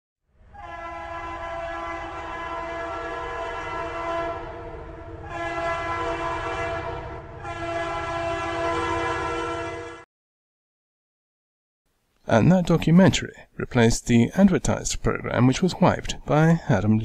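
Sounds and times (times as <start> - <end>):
train rumbling: 0.4 - 9.5
train horn blasts: 0.4 - 10.1.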